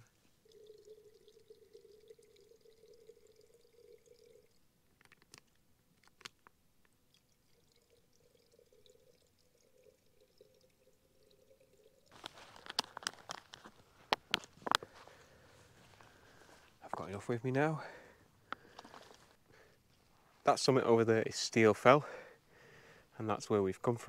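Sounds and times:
water trickling into a bottle: 0.0s - 20.7s
plastic clicking and rustling: 5.0s - 6.6s, 12.2s - 14.9s
small clicks: 5.0s - 7.0s.

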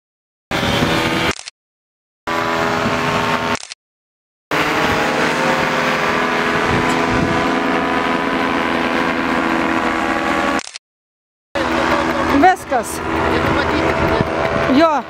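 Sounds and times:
paramotor engines droning: 0.5s - 1.4s, 2.3s - 3.6s, 4.5s - 10.7s, 11.6s - 15.0s.

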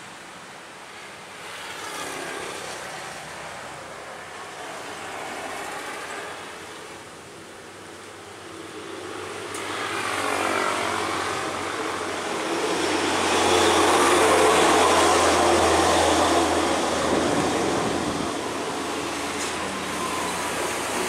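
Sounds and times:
vehicle passing by: 9.8s - 21.0s.

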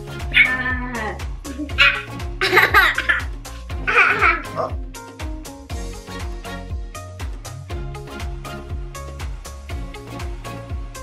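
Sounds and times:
music with steady beat: 0.0s - 11.0s
high voice crying out: 0.3s - 2.2s, 3.8s - 4.8s.

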